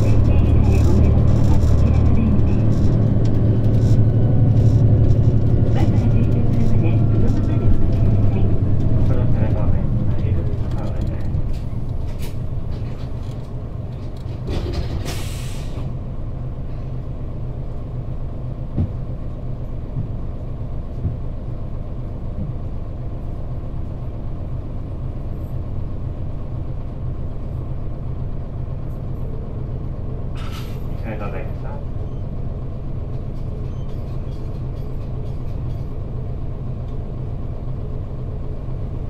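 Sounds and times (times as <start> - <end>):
diesel bus engine idling: 0.0 - 39.0
air brakes hissing: 14.8 - 15.9, 30.4 - 30.9.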